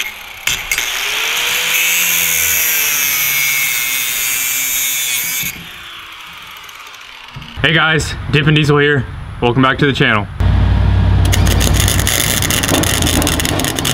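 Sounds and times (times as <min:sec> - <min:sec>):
motor winding down: 0:00.0 - 0:03.3, 0:05.4 - 0:07.6, 0:10.4 - 0:13.9
angle grinder grinding steel: 0:00.0 - 0:07.6, 0:11.3 - 0:13.9.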